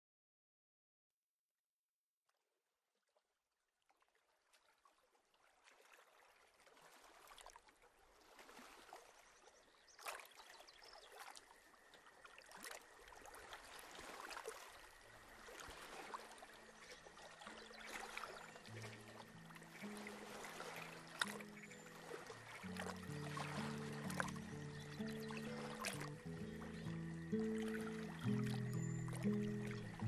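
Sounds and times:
stream water flowing: 0:05.0 - 0:30.0
soft low sustained music: 0:14.8 - 0:30.0.

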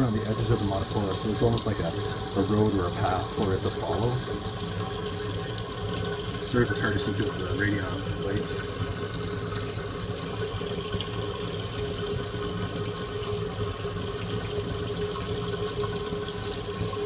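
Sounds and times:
steady low hum: 0:00.0 - 0:14.1
water rushing and trickling: 0:00.0 - 0:17.0.

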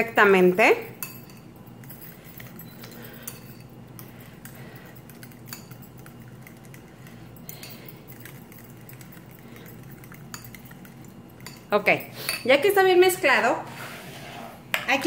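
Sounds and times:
metal bangles jingling: 0:00.0 - 0:12.7
metal utensil stirring in a bowl: 0:00.0 - 0:12.7
light clinks against bowl: 0:00.8 - 0:12.6.

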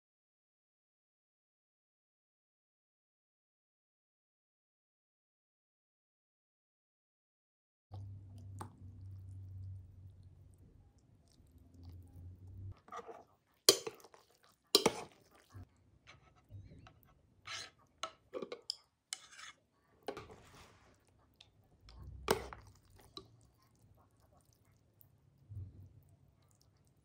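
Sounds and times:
soup being ladled: 0:12.7 - 0:16.3, 0:21.9 - 0:23.8
utensils clinking on bowl: 0:13.0 - 0:15.4, 0:17.5 - 0:20.4.

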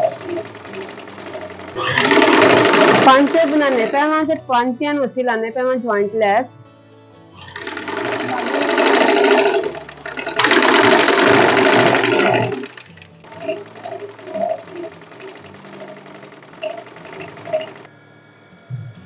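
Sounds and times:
sewing machine running: 0:00.0 - 0:04.2, 0:07.4 - 0:17.9
soft background music: 0:00.0 - 0:19.0.

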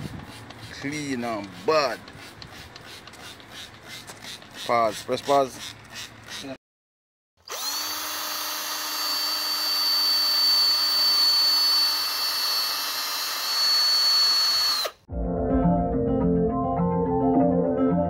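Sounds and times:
cordless drill whine: 0:07.4 - 0:15.1.

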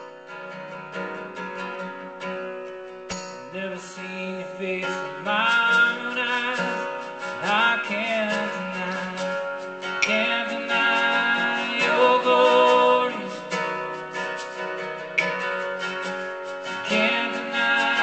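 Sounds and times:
acoustic guitar strumming: 0:00.0 - 0:18.0
person singing long notes: 0:07.4 - 0:14.2, 0:16.8 - 0:18.0.

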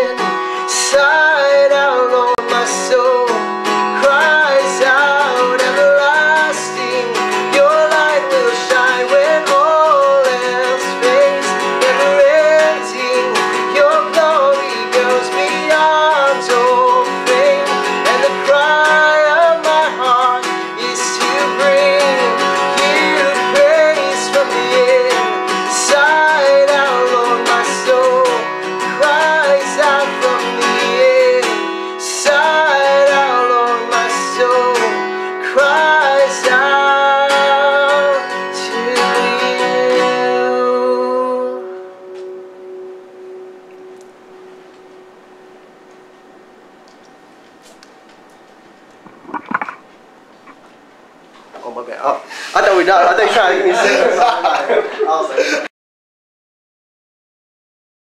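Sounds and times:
man singing: 0:00.0 - 0:41.8
acoustic guitar strummed: 0:00.0 - 0:55.7.

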